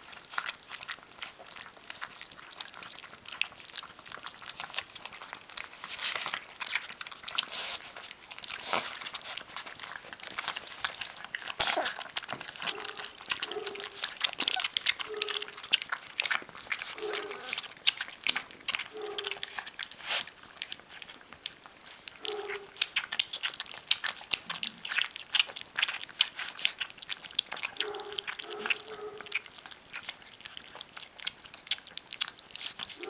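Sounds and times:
puppies lapping and chewing: 0:00.0 - 0:33.0
puppy grunts: 0:11.4 - 0:17.7.

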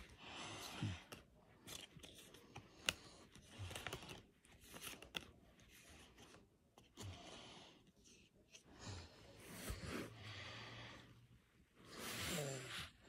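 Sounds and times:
cards sliding against cards: 0:00.6 - 0:08.6.

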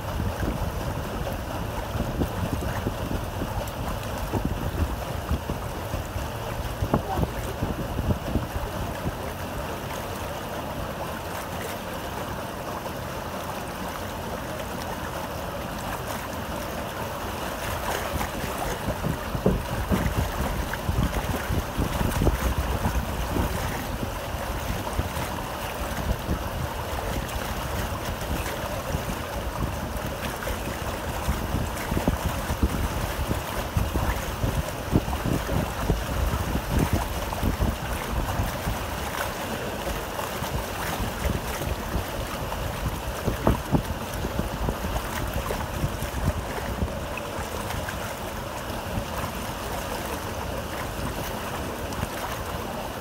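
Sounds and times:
wind buffeting microphone: 0:00.0 - 0:10.0, 0:17.6 - 0:53.0
water rushing and splashing: 0:00.0 - 0:53.0.

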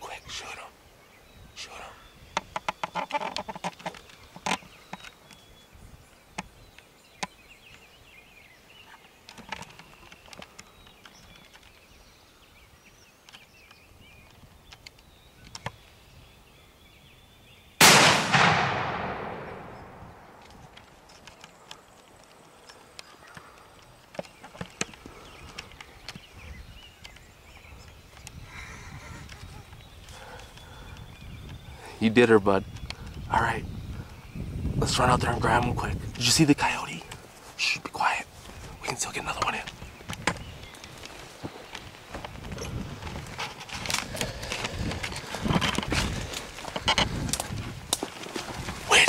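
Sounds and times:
faint clicks and rustles: 0:02.3 - 0:15.9, 0:20.3 - 0:31.6, 0:36.1 - 0:49.0
shotgun shot echoing: 0:17.8 - 0:20.4.

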